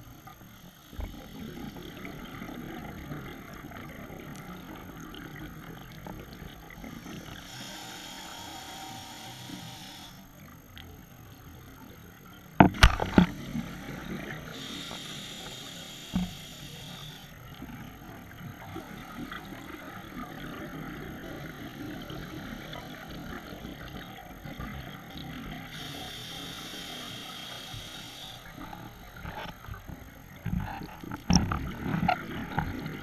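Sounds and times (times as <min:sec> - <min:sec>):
regulator hissing inhalation: 0:06.8 - 0:10.3, 0:14.3 - 0:17.3, 0:25.7 - 0:29.0.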